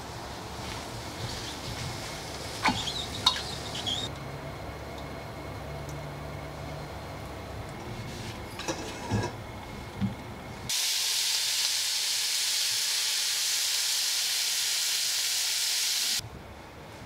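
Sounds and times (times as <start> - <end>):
meat and onion sizzling in pan: 10.7 - 16.2.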